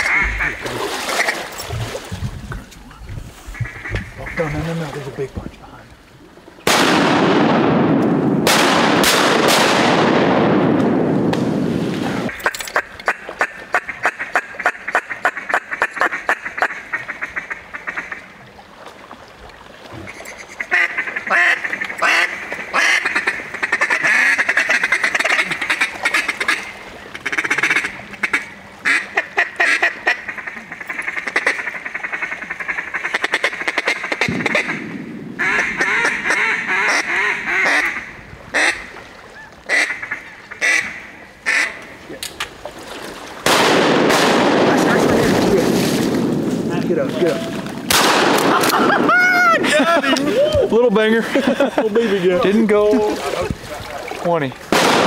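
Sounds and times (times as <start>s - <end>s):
duck call blasts and quacks: 0.0s - 0.6s, 12.3s - 18.2s, 20.1s - 38.9s, 39.7s - 41.8s.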